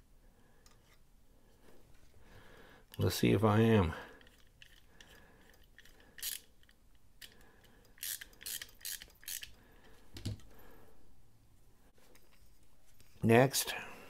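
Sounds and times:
screwdriver metallic scraping clicks: 0:04.2 - 0:09.6.

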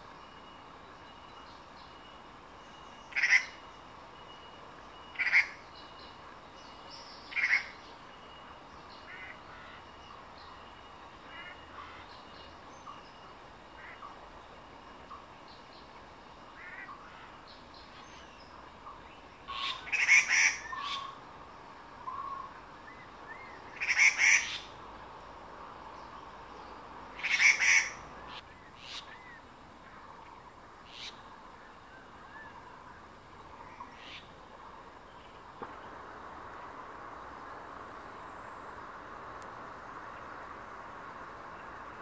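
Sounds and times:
faint bird chirps: 0:00.0 - 0:21.2, 0:22.0 - 0:24.8
bird harsh rasping calls: 0:03.1 - 0:03.6, 0:05.2 - 0:05.6, 0:19.5 - 0:21.2, 0:23.8 - 0:24.7, 0:27.2 - 0:29.1.

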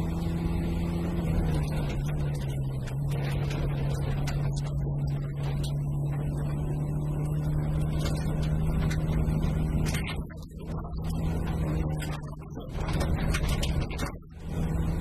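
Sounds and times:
car engine running hard: 0:00.0 - 0:15.0
gravel striking car: 0:00.0 - 0:15.0.

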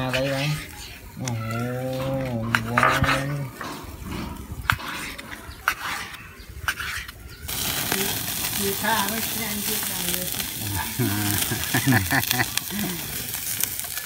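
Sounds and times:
meat sizzling on grill: 0:06.8 - 0:14.0.

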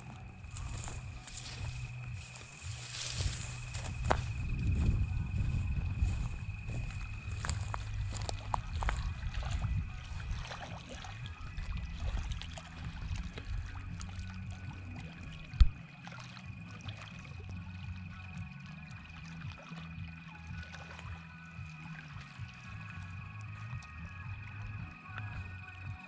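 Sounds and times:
wind buffeting microphone: 0:00.0 - 0:10.6
small waves lapping: 0:00.0 - 0:23.9.

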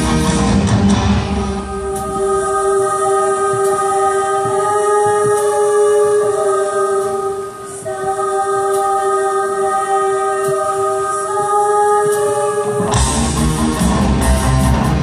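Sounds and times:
rock band playing loudly: 0:00.0 - 0:01.8, 0:12.9 - 0:15.0
singers holding a chord: 0:00.9 - 0:14.0.

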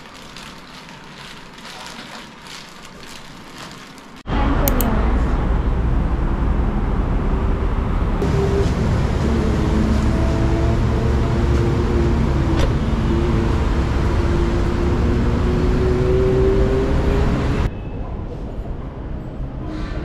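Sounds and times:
motor vehicle rumble: 0:04.2 - 0:19.7.

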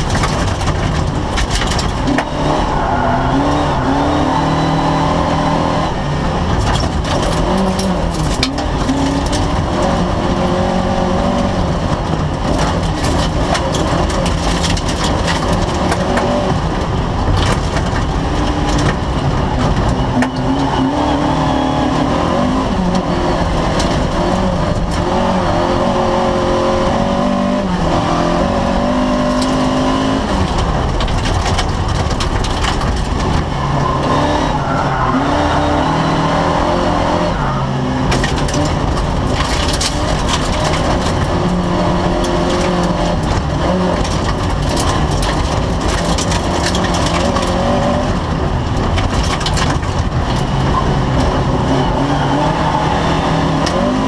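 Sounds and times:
stones clattering against car body: 0:00.0 - 0:02.3, 0:06.6 - 0:09.6, 0:11.9 - 0:16.4, 0:29.3 - 0:33.4, 0:38.1 - 0:48.0, 0:48.8 - 0:50.5
racing car engine revving: 0:00.0 - 0:54.0.

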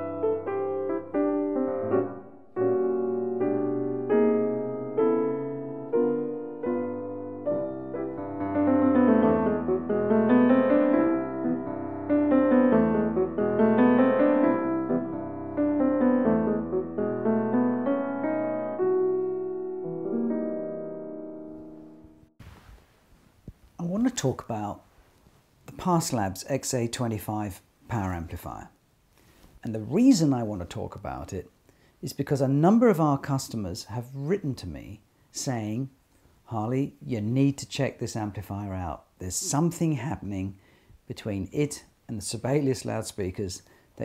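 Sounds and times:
piano music: 0:00.0 - 0:22.4.

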